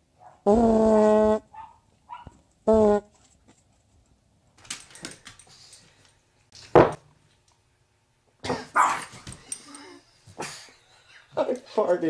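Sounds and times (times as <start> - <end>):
dog barking: 0.2 - 0.5, 1.5 - 2.4, 8.8 - 9.1.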